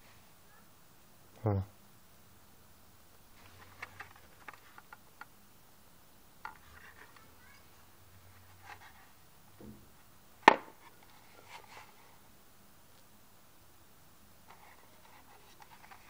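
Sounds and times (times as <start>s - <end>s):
sharp knock on plastic: 10.4s - 10.7s.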